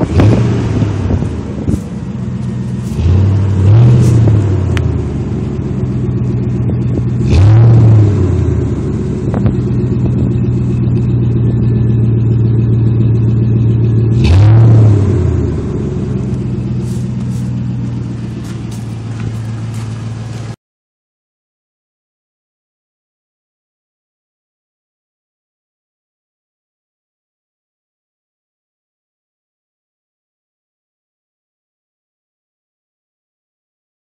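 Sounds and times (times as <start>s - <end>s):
pickup truck engine idling and revving: 0.0s - 20.6s.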